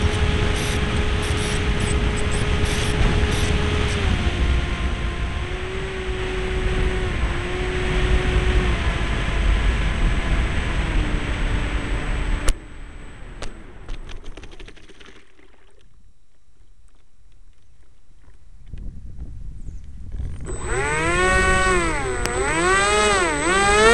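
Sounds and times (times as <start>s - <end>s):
model plane propeller motor: 0.0s - 12.6s, 20.0s - 23.9s.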